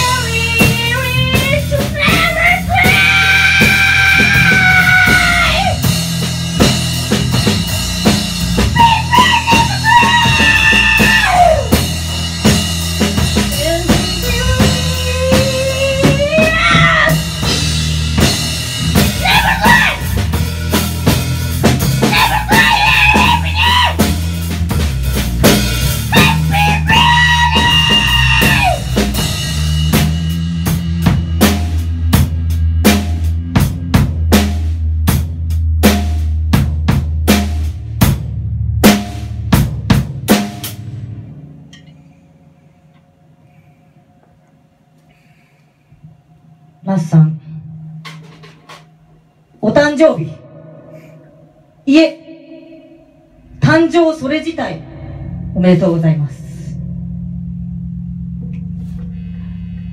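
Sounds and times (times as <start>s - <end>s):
drum kit playing: 0.0s - 42.8s, 47.9s - 49.7s, 51.9s - 59.9s
woman singing: 8.8s - 11.4s, 13.6s - 17.2s.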